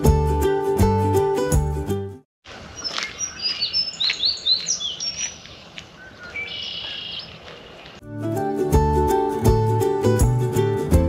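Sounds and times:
songbirds chirping and whistling: 2.7s - 8.0s
bird trill: 2.8s - 8.0s.

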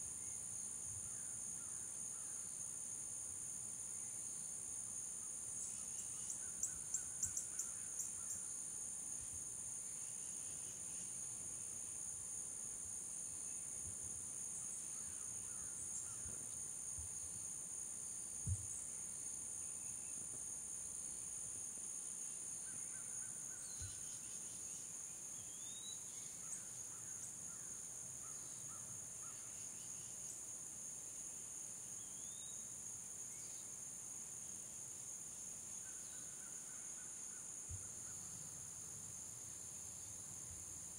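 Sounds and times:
insect chorus: 0.0s - 40.9s
soft low thump: 18.4s - 18.8s.

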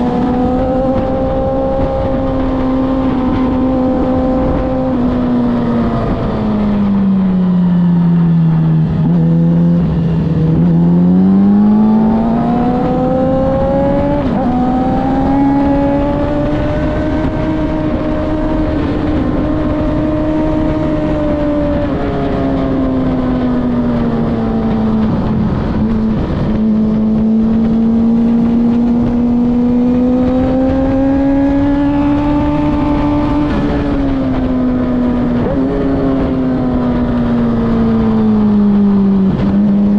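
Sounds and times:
car engine running hard: 0.0s - 39.9s.

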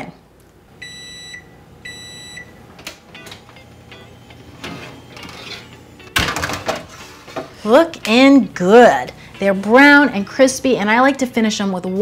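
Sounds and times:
oven timer beep: 0.8s - 2.6s, 3.2s - 5.2s.

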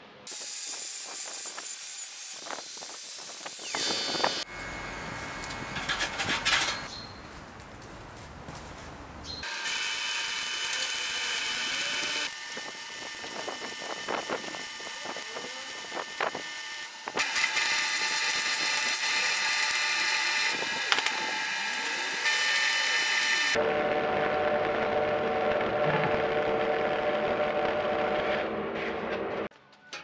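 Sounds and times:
arc welding crackling hiss: 0.3s - 6.1s
sharp welding pops: 20.8s - 21.3s.

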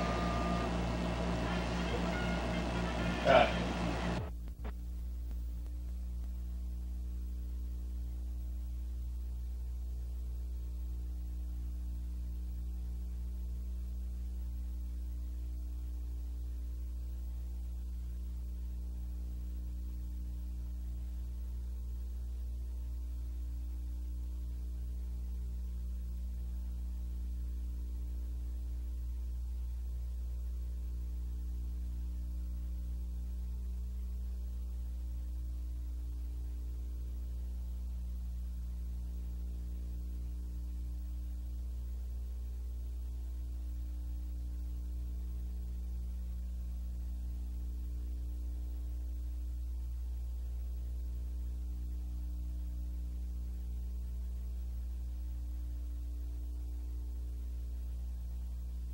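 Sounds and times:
electrical mains hum: 0.0s - 58.9s.

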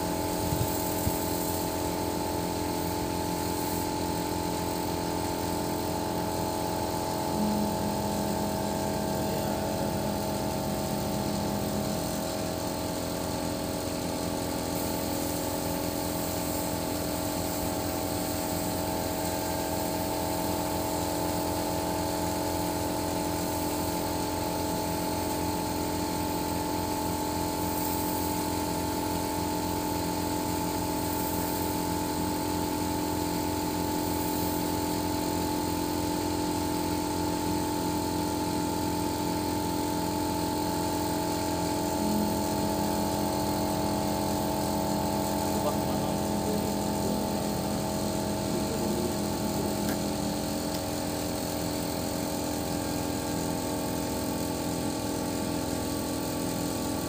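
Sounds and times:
engine idling: 0.0s - 57.0s
low tone: 7.2s - 12.2s.

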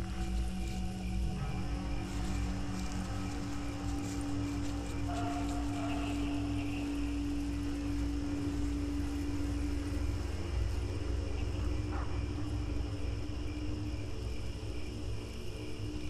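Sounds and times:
crickets and insects chirring: 0.0s - 16.0s
hum-like drone: 0.0s - 16.0s.

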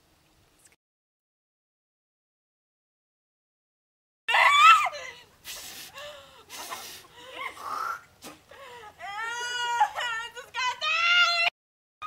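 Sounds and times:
woman squealing: 4.3s - 5.3s, 7.2s - 11.5s
breathy laughing: 5.9s - 10.2s.

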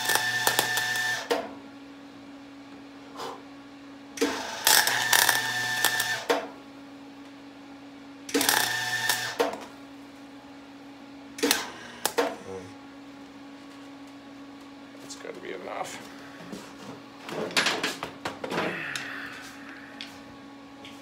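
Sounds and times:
electric welder crackling: 0.0s - 1.4s, 4.2s - 6.4s, 8.3s - 9.8s, 11.4s - 12.5s
welding machine hum: 0.0s - 1.5s, 4.2s - 6.6s, 8.2s - 10.5s, 11.2s - 18.0s.

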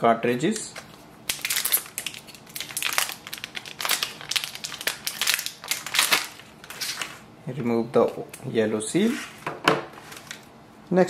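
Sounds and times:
plastic pouch crinkling: 1.3s - 7.2s.

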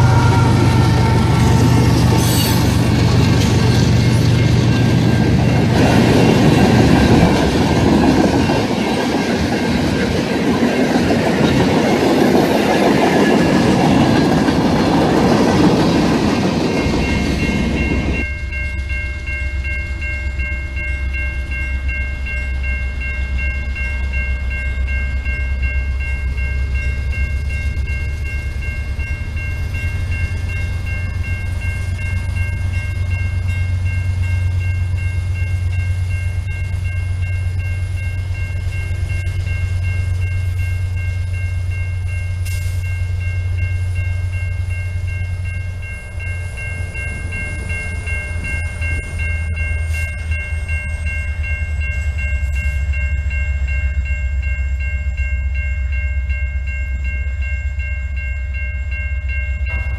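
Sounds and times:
freight train wheels clattering: 0.0s - 18.3s
diesel locomotive rumble: 0.0s - 59.9s
high ringing tone: 0.0s - 59.9s.

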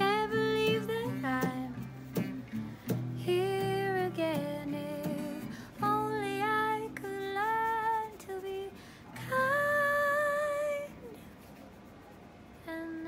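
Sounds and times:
woman singing: 0.0s - 2.3s, 3.1s - 11.2s, 12.7s - 13.0s
strummed acoustic guitar: 0.0s - 8.1s.

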